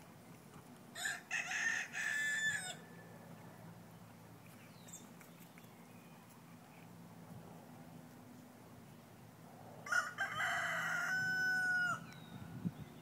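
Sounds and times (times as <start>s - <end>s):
rooster crowing: 1.0s - 3.0s, 9.8s - 12.1s.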